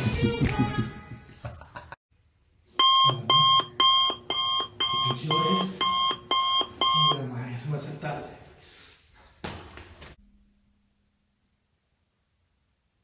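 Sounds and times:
music: 0.0 - 1.3
electronic alarm clock beeping: 2.8 - 7.2.

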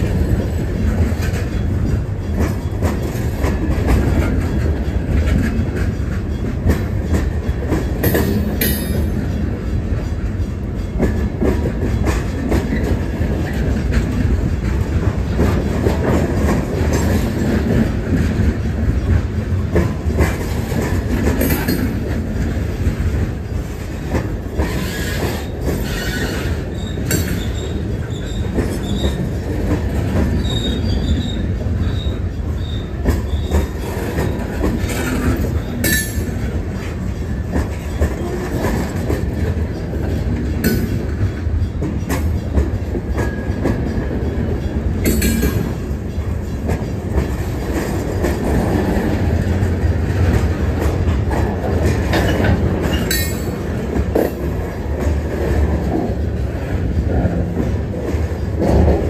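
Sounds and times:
steel wheels rumbling on rails: 0.0 - 59.0
sharp metal clanks: 52.9 - 53.6.

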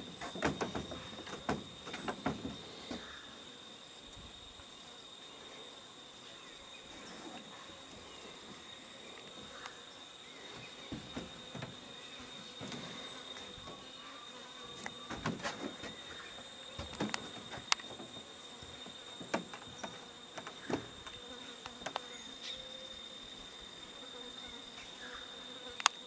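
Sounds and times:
sharp clicks and knocks: 0.0 - 3.0, 16.8 - 22.0
insects buzzing drone: 0.0 - 26.0.

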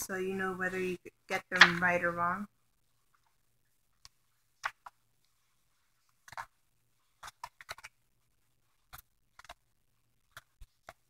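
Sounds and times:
book pages turning: 2.8 - 11.0.

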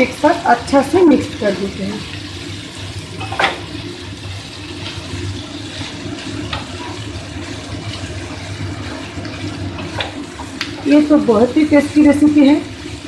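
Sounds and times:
frying hiss: 0.0 - 13.0
spatula scraping a pan: 4.6 - 11.0.

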